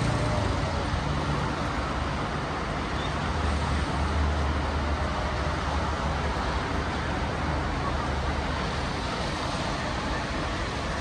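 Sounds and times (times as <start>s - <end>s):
highway traffic noise: 0.0s - 11.0s.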